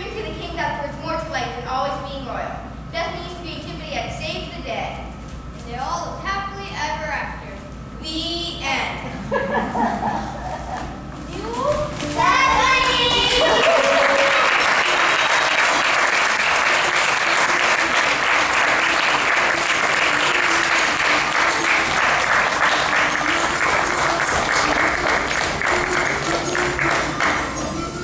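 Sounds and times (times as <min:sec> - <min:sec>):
audience applauding: 0:12.5 - 0:27.7.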